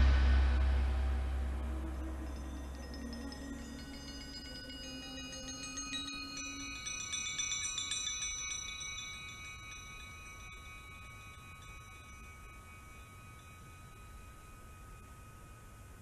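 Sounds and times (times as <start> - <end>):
low sustained note: 0.0 - 7.6
metallic chimes ringing: 1.6 - 16.0.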